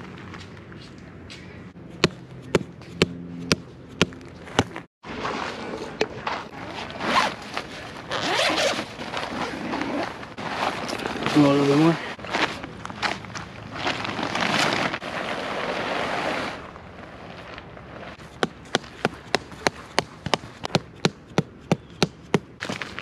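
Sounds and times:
tent fabric rustling: 0:06.5 - 0:18.2
zipper pulled open: 0:06.6 - 0:11.8.

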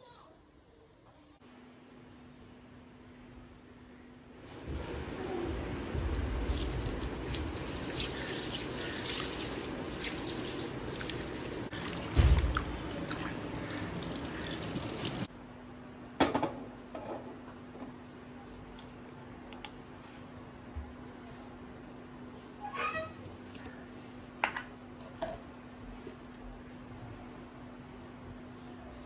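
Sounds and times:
hands washing prawns: 0:04.5 - 0:15.3
thump: 0:12.2 - 0:12.5.

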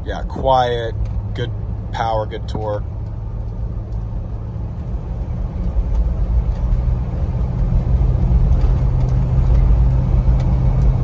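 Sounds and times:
engine and road drone: 0:00.0 - 0:11.0.

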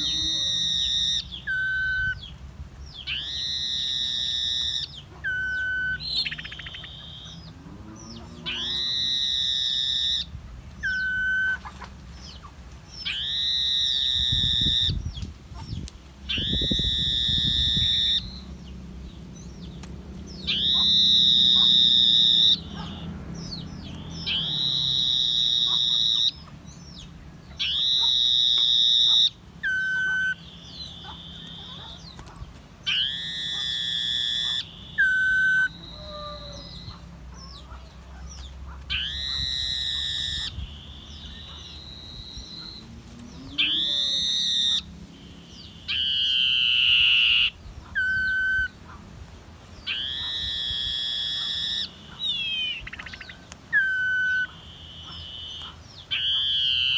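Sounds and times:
bird long high whistles: 0:00.0 - 0:02.2, 0:03.1 - 0:07.3, 0:08.5 - 0:11.6, 0:13.0 - 0:15.0, 0:16.3 - 0:18.4, 0:20.4 - 0:22.7, 0:24.2 - 0:26.4, 0:32.9 - 0:37.0, 0:38.9 - 0:42.8, 0:49.9 - 0:53.2.

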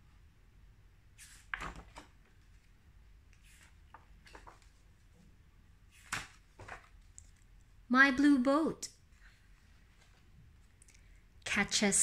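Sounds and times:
book pages turning: 0:01.2 - 0:02.7, 0:03.3 - 0:04.9, 0:05.9 - 0:07.4
paper rustling: 0:01.2 - 0:05.2, 0:05.9 - 0:07.4.

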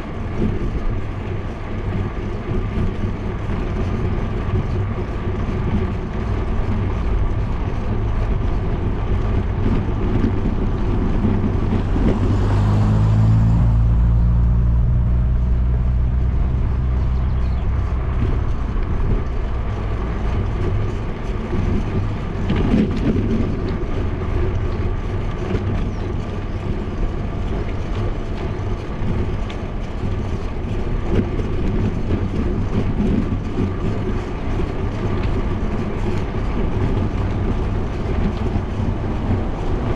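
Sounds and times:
wind rushing over microphone: 0:00.0 - 0:39.9
car engine passing: 0:10.8 - 0:18.8.

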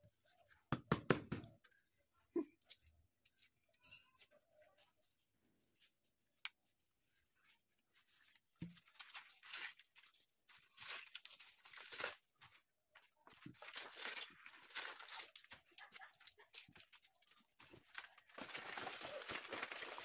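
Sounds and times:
food mixture rustling and crunching: 0:07.4 - 0:20.0.

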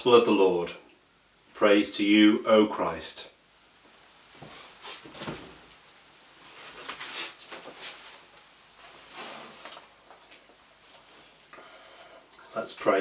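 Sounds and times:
soft rustling and knocking: 0:03.8 - 0:05.9.

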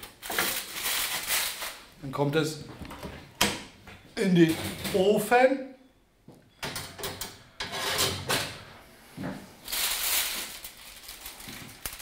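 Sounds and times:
metal kitchenware knocks and clanks: 0:06.5 - 0:08.6
metal pan scraping slide: 0:07.6 - 0:08.6.

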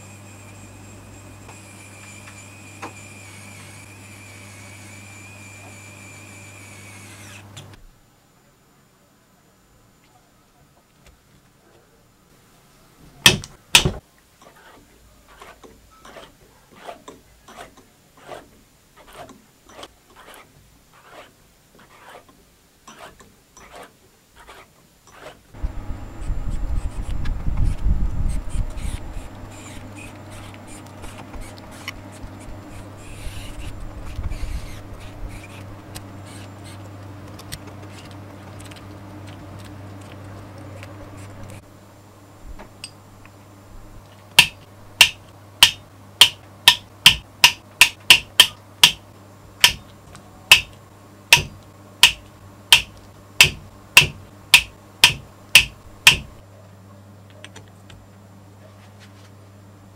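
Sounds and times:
electric screwdriver hum: 0:01.4 - 0:07.5, 0:25.6 - 0:38.8.

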